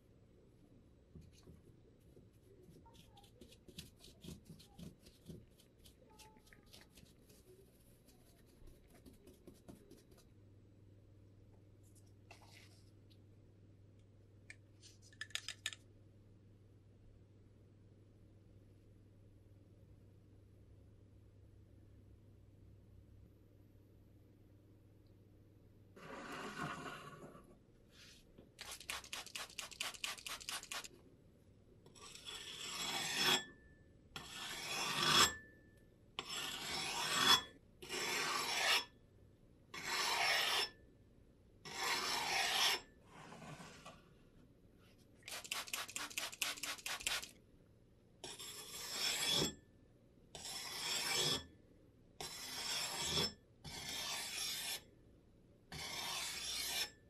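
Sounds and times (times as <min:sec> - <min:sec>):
axe sharpened on whetstone: 0:32.0 - 0:33.5, 0:34.2 - 0:35.5, 0:36.2 - 0:38.9, 0:39.8 - 0:40.8, 0:41.7 - 0:42.9, 0:48.2 - 0:49.6, 0:50.4 - 0:51.5, 0:52.2 - 0:54.8, 0:55.7 - 0:57.0.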